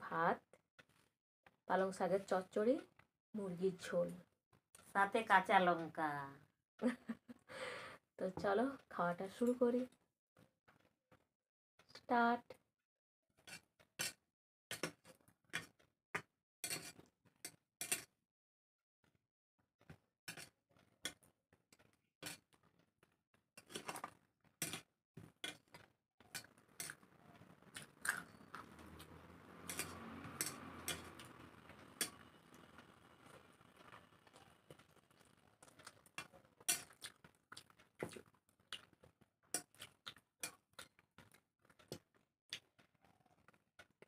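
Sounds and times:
fingers mixing rice on steel plates: 0:25.4 - 0:38.2.

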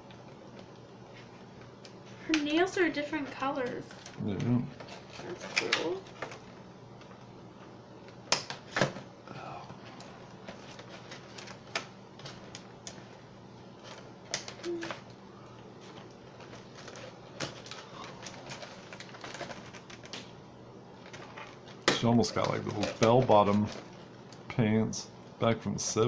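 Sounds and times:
plastic packaging rustling: 0:00.0 - 0:09.2, 0:09.8 - 0:25.0.

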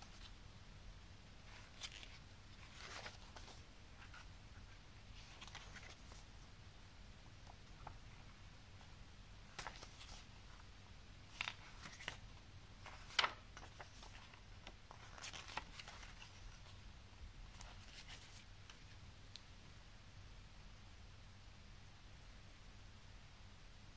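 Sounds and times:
paper pages rustling: 0:00.0 - 0:00.4, 0:01.4 - 0:06.3, 0:09.5 - 0:16.8, 0:17.5 - 0:18.9.

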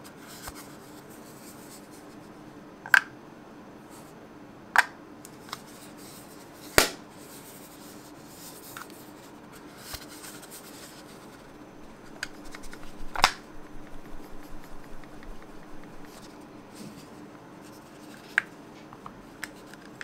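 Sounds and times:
light rubbing: 0:10.8 - 0:16.8.

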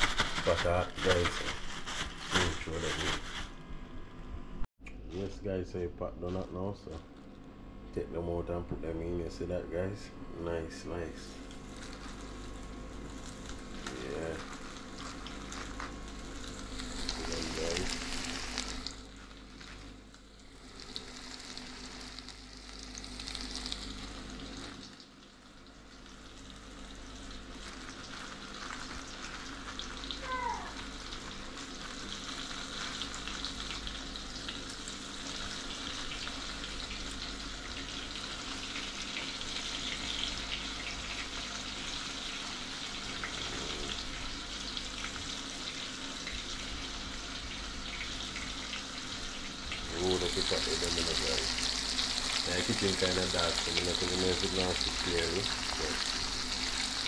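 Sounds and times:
fish frying in hot oil: 0:11.6 - 0:57.0.

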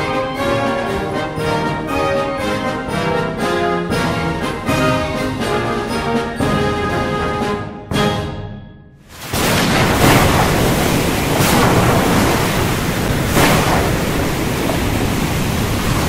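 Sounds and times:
wind and surf rushing: 0:09.1 - 0:16.0.

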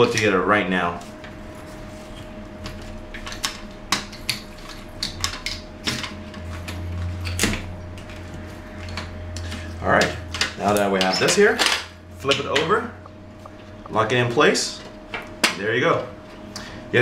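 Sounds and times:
faint steady hum: 0:07.8 - 0:17.0.

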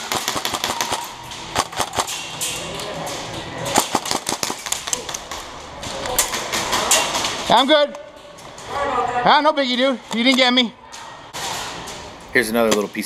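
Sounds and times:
airsoft guns firing: 0:00.0 - 0:02.3, 0:03.7 - 0:07.6.

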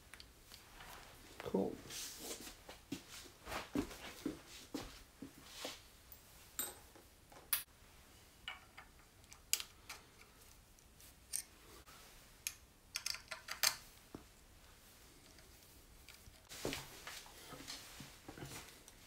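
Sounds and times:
hex key clicking on screw: 0:12.9 - 0:13.8.

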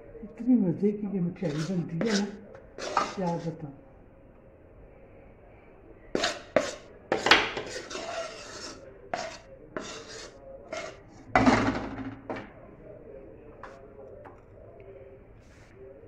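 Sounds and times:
spoon scraping metal pan: 0:01.4 - 0:03.6, 0:06.2 - 0:11.0.

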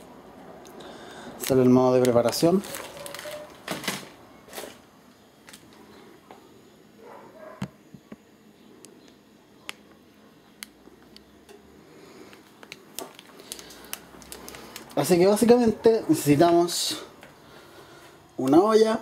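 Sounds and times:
plastic wrapper crinkling: 0:01.4 - 0:04.8, 0:12.3 - 0:15.7.

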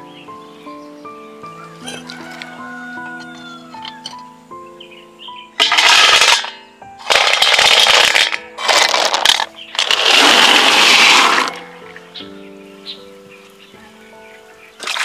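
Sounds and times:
clay blocks clattering in a bowl: 0:05.6 - 0:11.6.

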